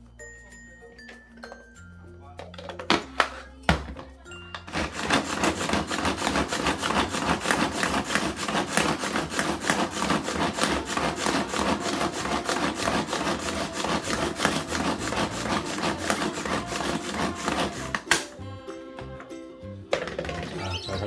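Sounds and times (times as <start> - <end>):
pull cord food chopper whirring: 4.7 - 18.3.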